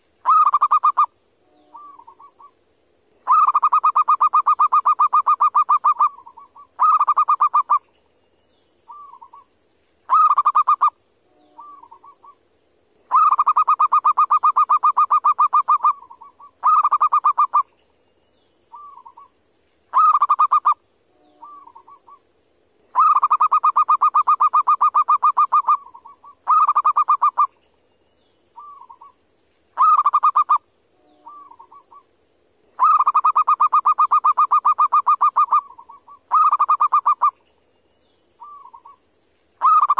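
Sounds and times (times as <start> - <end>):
steady high hiss: 0.0 - 39.9
dove cooing trill: 0.2 - 2.5, 3.3 - 7.8, 10.1 - 10.9, 13.1 - 17.6, 19.9 - 20.8, 21.4 - 22.2, 23.0 - 27.5, 29.8 - 30.6, 31.2 - 32.0, 32.8 - 37.4, 38.4 - 39.0, 39.6 - 39.9.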